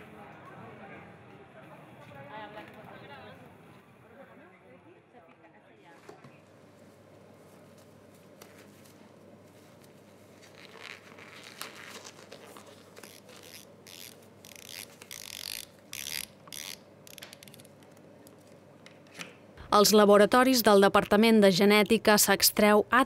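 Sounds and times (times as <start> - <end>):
low steady hum: 6.5 - 23.0
gloved hands rustling and crinkling: 7.4 - 15.6.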